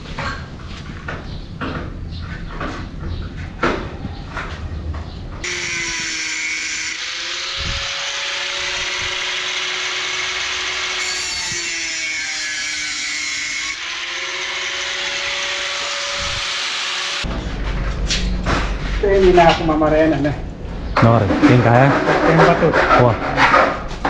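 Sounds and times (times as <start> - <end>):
angle grinder cutting metal: 5.4 - 17.3.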